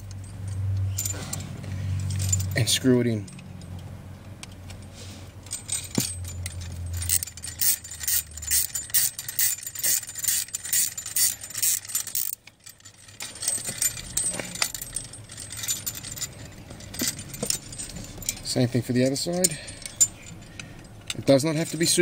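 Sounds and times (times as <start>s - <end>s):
metal bracket rattling: 0.0s - 22.0s
spanner clicking on bolt: 5.5s - 22.0s.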